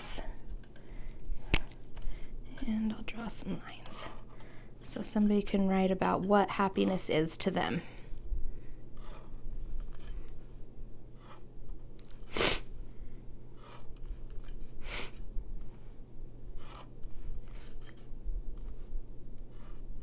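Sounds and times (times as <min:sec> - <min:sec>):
faint steady hum: 0:00.0 - 0:20.0
marker scratching on card: 0:13.6 - 0:16.0.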